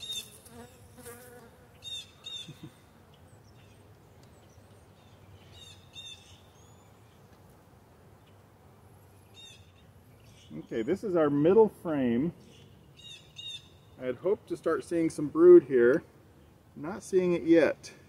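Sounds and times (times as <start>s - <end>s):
bees buzzing: 0.0s - 3.0s
bird chirping: 1.8s - 7.4s, 9.2s - 11.3s, 12.4s - 14.0s.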